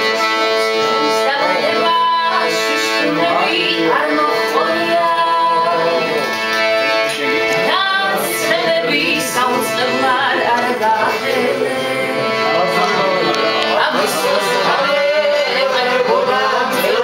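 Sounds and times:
man singing: 0:00.0 - 0:06.4, 0:07.0 - 0:17.0
accordion playing chords: 0:00.0 - 0:17.0.

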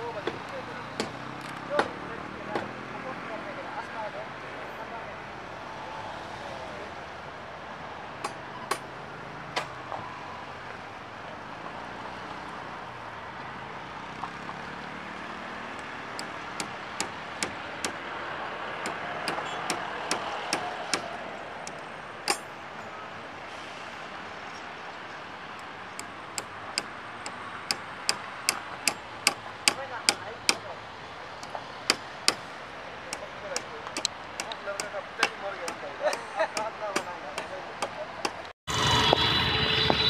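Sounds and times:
distant road traffic hum: 0:00.0 - 0:40.0
sharp knocks: 0:01.0 - 0:02.7, 0:08.2 - 0:08.8, 0:16.2 - 0:18.0, 0:18.8 - 0:21.1, 0:22.3 - 0:22.5.

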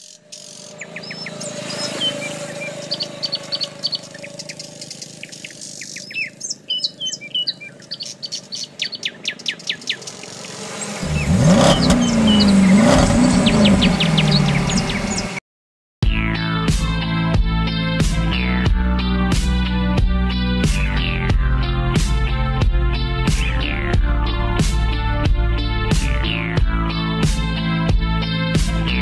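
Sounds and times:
birds chirping: 0:00.0 - 0:15.4
go-kart engine revving: 0:00.4 - 0:15.4.

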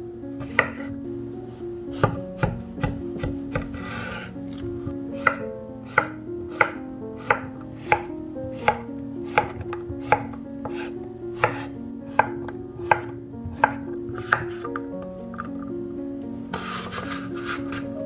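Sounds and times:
soft background music: 0:00.0 - 0:18.0
knife chopping on wooden board: 0:05.2 - 0:14.7.

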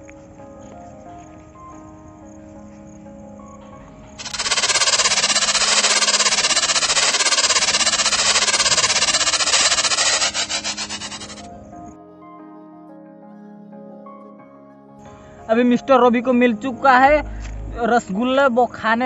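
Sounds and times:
background music: 0:00.0 - 0:05.0, 0:10.4 - 0:19.0
prize wheel ticking: 0:04.2 - 0:11.5.

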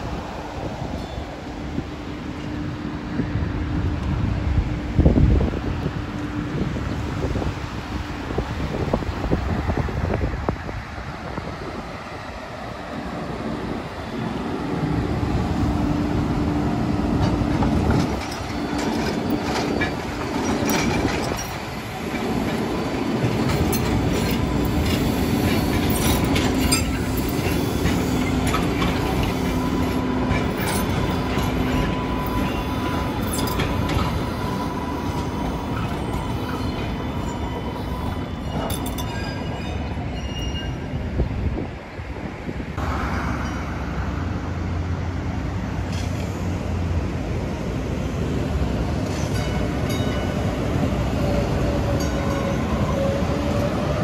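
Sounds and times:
wheels clicking over rail joints: 0:17.1 - 0:40.1.

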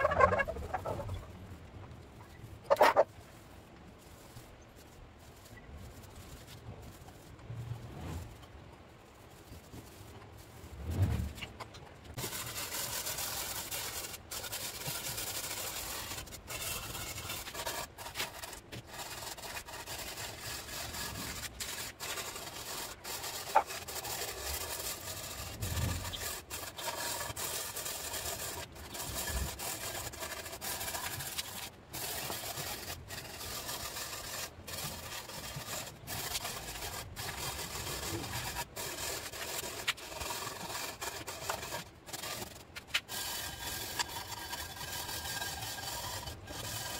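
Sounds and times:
wire brush scrubbing steel: 0:00.0 - 0:01.4, 0:02.2 - 0:03.3, 0:12.1 - 0:46.9.

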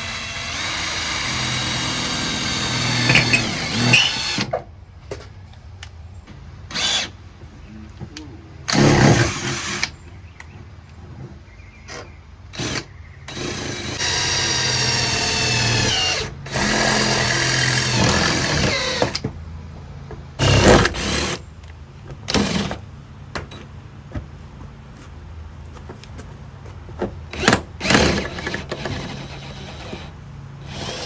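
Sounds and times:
cordless drill boring through steel: 0:00.0 - 0:04.5, 0:12.6 - 0:19.2, 0:27.4 - 0:30.1, 0:30.7 - 0:31.0.

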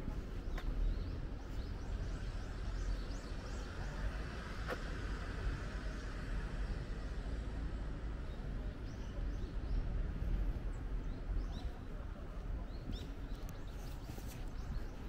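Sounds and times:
low outdoor rumble: 0:00.0 - 0:15.0
small birds chirping: 0:00.1 - 0:04.6, 0:08.2 - 0:15.0.

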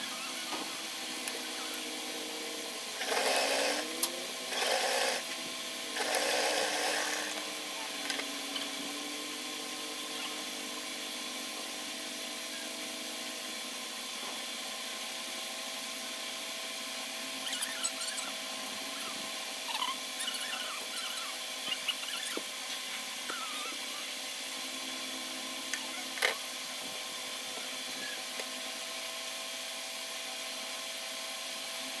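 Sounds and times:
sewing machine stitching: 0:06.0 - 0:07.4.

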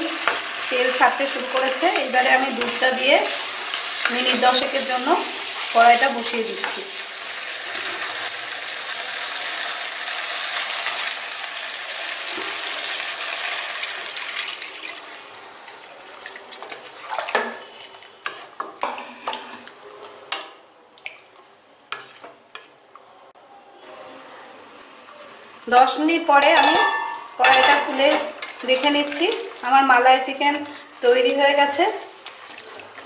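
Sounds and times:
chicken sizzling in oil: 0:00.0 - 0:17.0
spatula scraping and knocking pan: 0:22.0 - 0:22.7, 0:26.4 - 0:29.4.

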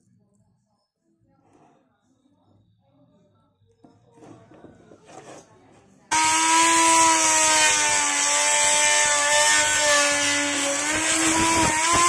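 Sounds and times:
grinder saw whining cutting plywood: 0:06.1 - 0:12.0.

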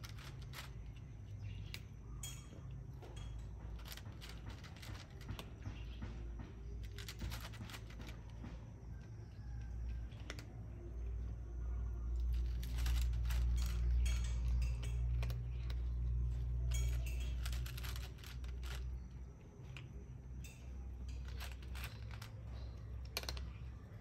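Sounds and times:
cat crunching dry food: 0:00.0 - 0:01.9, 0:03.2 - 0:05.6, 0:06.8 - 0:08.2, 0:10.1 - 0:10.5, 0:12.2 - 0:19.9, 0:20.9 - 0:24.0
low steady rumble: 0:00.0 - 0:24.0.

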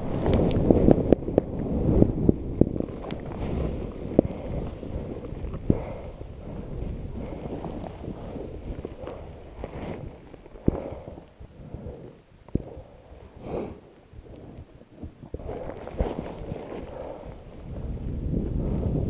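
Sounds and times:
wind buffeting microphone: 0:00.0 - 0:19.0
skis rushing through snow: 0:02.8 - 0:06.2, 0:06.8 - 0:11.1.

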